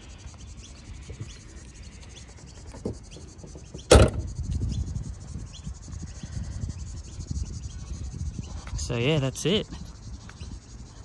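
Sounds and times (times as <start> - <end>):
low rumbling handling noise: 0.9 - 5.8
car bonnet slammed shut: 3.8 - 4.3.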